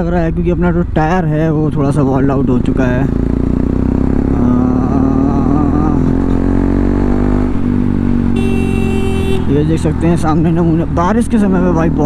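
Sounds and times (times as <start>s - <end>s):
motorcycle engine revving: 1.7s - 12.0s
horn beep: 8.3s - 9.6s.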